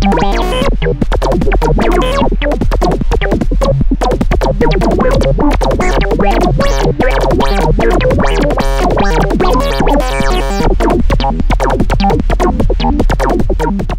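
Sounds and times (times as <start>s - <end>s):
low bass tone: 0.0s - 13.9s
sharp clicking hits: 0.0s - 13.9s
synthesizer notes: 0.0s - 13.9s.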